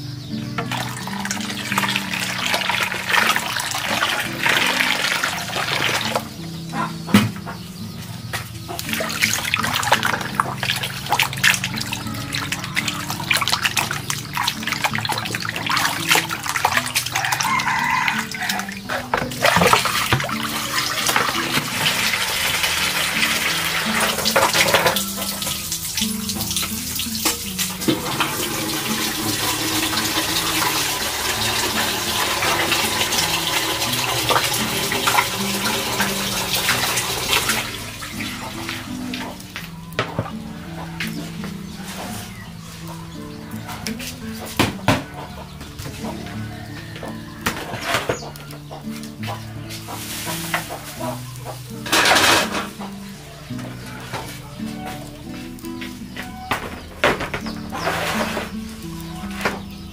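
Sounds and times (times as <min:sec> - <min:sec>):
simple background music: 0:00.0 - 0:59.9
tap water running and splashing: 0:00.6 - 0:06.4, 0:08.4 - 0:40.4, 0:43.8 - 0:53.0.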